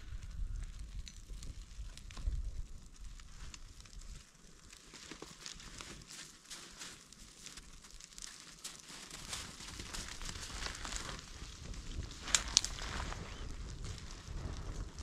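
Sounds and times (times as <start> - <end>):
twig fire crackling: 0.0 - 15.0
sharp snaps of twigs: 12.2 - 13.4.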